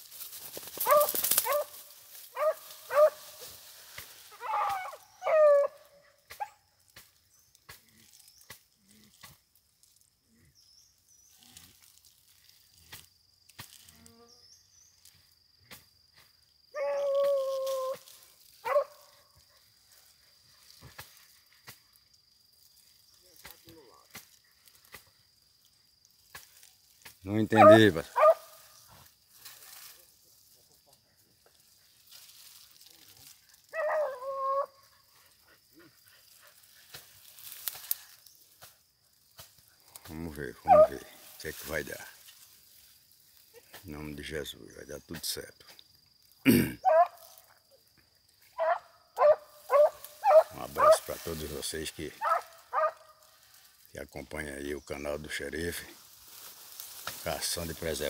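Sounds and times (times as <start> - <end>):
insect chirring: 0.0 - 58.0
dog baying: 0.8 - 1.8, 2.4 - 3.3, 4.4 - 6.6, 27.6 - 28.6, 33.7 - 34.9, 40.6 - 41.2, 46.8 - 47.2, 48.6 - 51.0, 52.2 - 53.1
dog yelp: 0.8 - 3.2, 4.3 - 6.6, 18.6 - 19.1, 27.6 - 28.6, 33.7 - 34.8, 40.6 - 41.1, 46.8 - 47.2, 48.6 - 51.0, 52.2 - 53.0.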